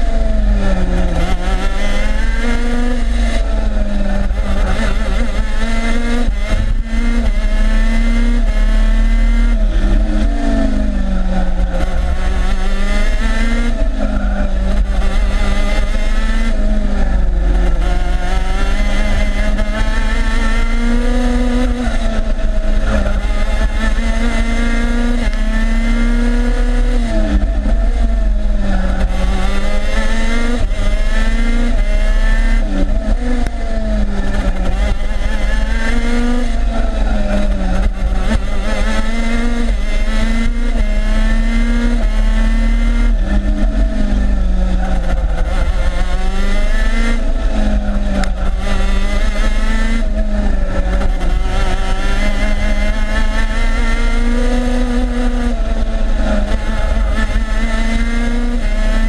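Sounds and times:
kart engine revving: 0:00.0 - 0:59.0.

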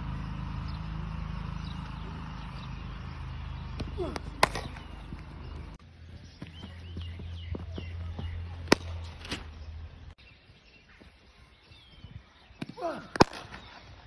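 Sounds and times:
cricket bat striking ball: 0:03.8 - 0:04.9, 0:08.6 - 0:09.0.

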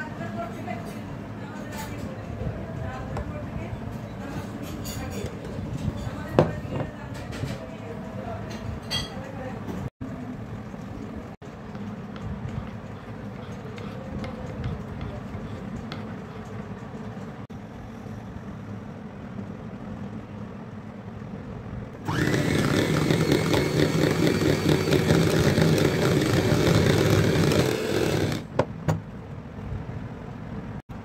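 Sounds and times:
electric hand mixer whirring: 0:22.0 - 0:28.5.

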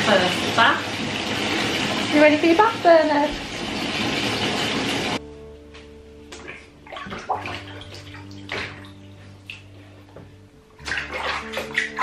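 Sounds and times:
bath water splashing: 0:00.0 - 0:05.2, 0:06.3 - 0:10.0, 0:10.8 - 0:12.0.

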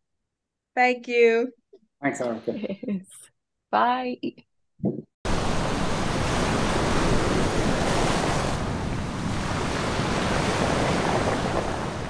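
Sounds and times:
waves breaking: 0:05.3 - 0:12.0.

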